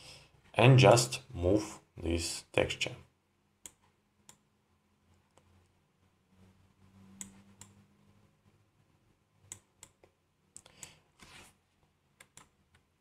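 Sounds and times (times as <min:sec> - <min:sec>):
faint computer mouse clicks: 0:12.2 - 0:12.8.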